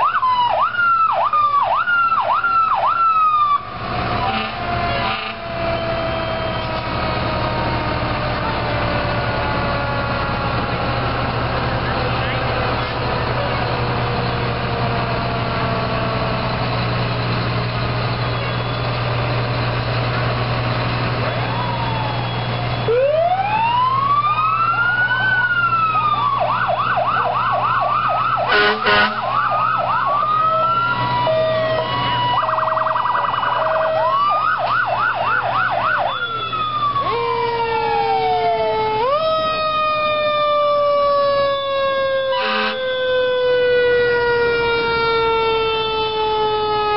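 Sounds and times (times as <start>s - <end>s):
diesel engine rumble: 0.0s - 46.9s
fire truck sirens: 0.0s - 46.9s
horn blast: 4.2s - 5.6s, 28.5s - 29.4s, 42.4s - 42.9s.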